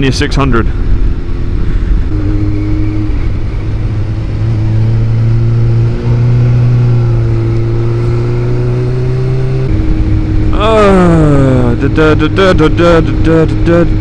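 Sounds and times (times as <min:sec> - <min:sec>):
wind noise on microphone: 0:00.0 - 0:10.6
motorcycle engine running: 0:00.0 - 0:14.0.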